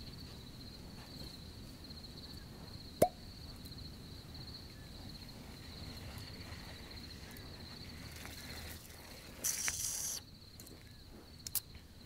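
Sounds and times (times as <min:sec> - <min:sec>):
crickets trilling: 0:00.0 - 0:12.0
loud hiss: 0:09.4 - 0:10.2.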